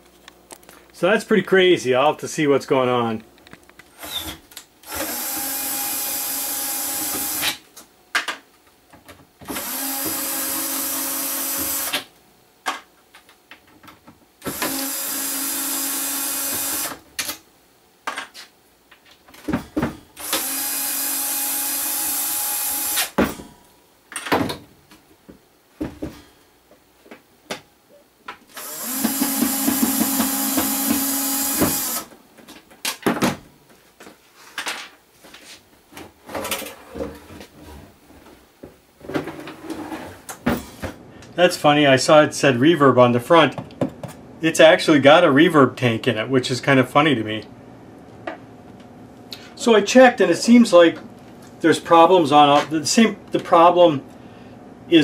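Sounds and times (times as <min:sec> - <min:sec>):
cordless drill motor whine: 0:09.5 - 0:12.0, 0:20.2 - 0:23.1, 0:28.5 - 0:32.1.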